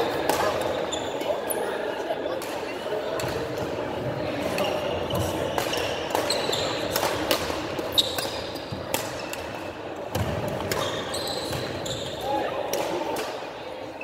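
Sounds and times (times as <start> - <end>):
badminton rackets hitting shuttlecock: 0.1 - 0.9, 5.1 - 11.7.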